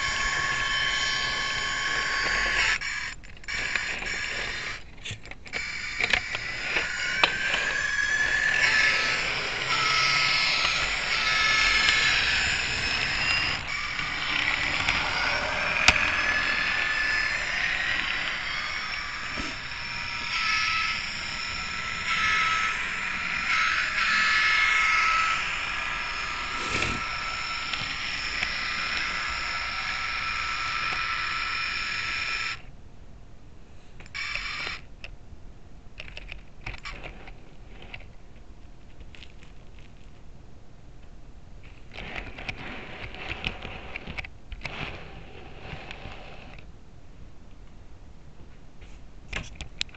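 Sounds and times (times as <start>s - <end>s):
high-pitched wheel squeals: 0.0s - 4.8s, 5.5s - 32.6s
model train wheels rattling on rails: 0.0s - 32.6s.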